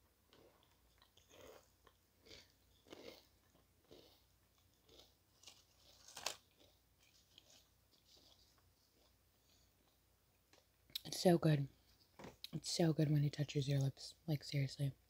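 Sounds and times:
chips crackling: 0.3s - 9.1s
chewing potato chips: 0.3s - 11.0s.

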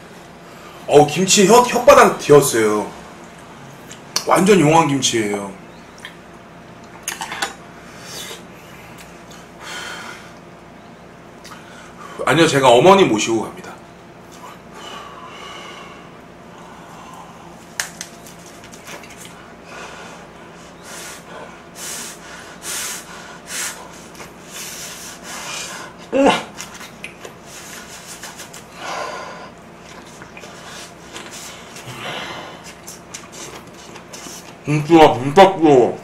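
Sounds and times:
man chewing: 7.9s - 9.6s, 16.2s - 34.7s
man grunting: 26.1s - 26.6s.

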